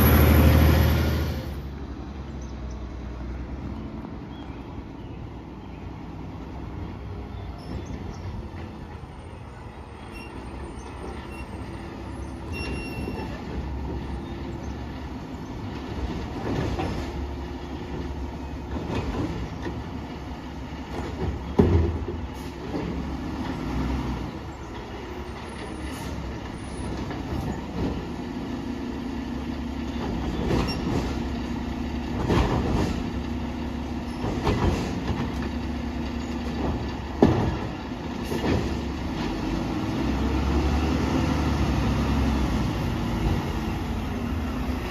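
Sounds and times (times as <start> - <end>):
garbage truck engine droning: 0.0 - 44.9
metal clanks and knocks: 32.1 - 33.2.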